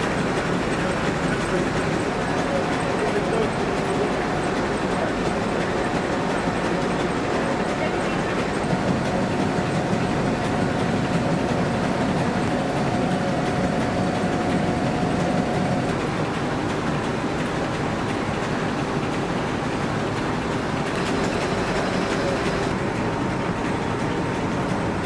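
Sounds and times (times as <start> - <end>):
carding machine rattling: 20.9 - 22.8.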